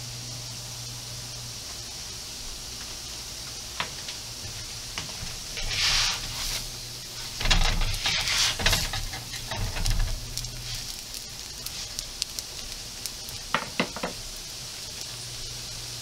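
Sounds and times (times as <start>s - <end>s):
flatbreads sizzling on a griddle: 0.0s - 16.0s
bread turned over by hand: 5.0s - 14.2s.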